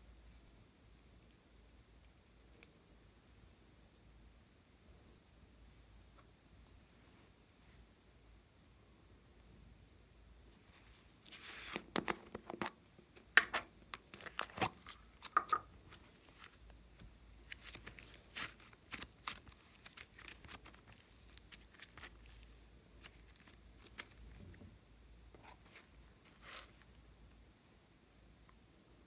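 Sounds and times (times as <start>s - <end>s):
modelling clay crackling clicks: 11.8s - 22.4s.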